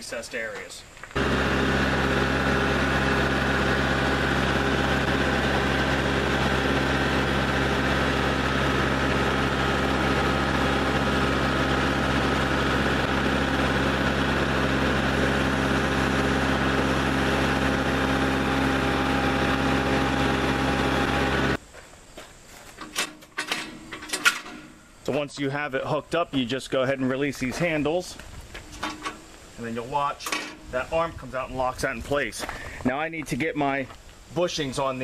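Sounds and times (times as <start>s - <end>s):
tractor diesel engine running: 1.2s - 21.6s.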